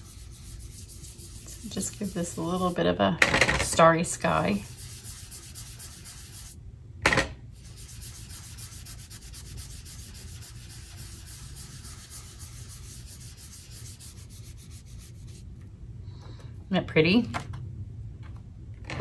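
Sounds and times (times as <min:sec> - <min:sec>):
brush scrubbing on cardstock: 0:00.0 - 0:02.9, 0:04.0 - 0:06.6, 0:07.6 - 0:15.5.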